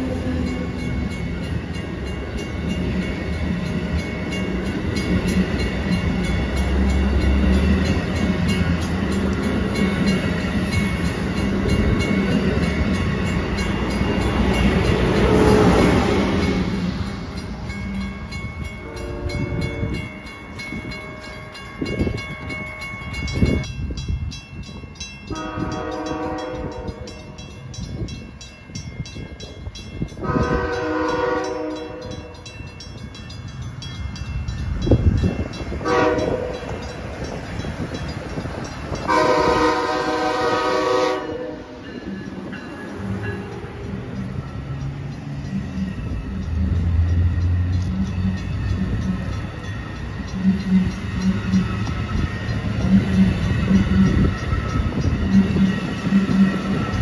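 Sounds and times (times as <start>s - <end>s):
train horn blasts: 15.1s - 16.2s, 18.8s - 20.0s, 25.3s - 27.4s, 30.2s - 32.4s, 35.8s - 36.8s, 39.0s - 41.8s.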